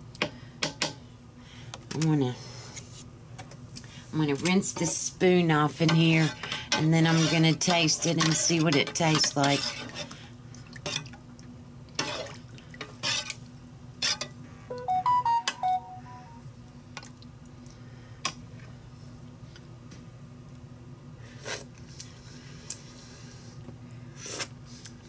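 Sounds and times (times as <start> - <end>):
short high-pitched notes: 14.7 - 16.5.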